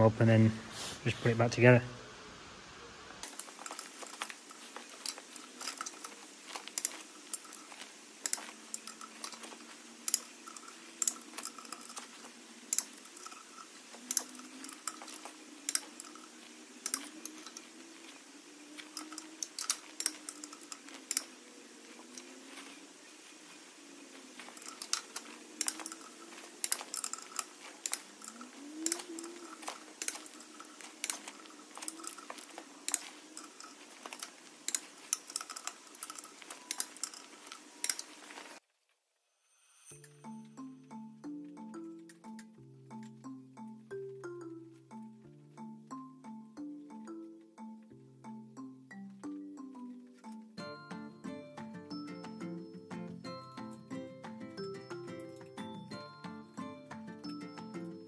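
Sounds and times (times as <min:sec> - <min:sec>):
torque wrench clicking: 0:12.7 - 0:17.6, 0:24.5 - 0:38.2.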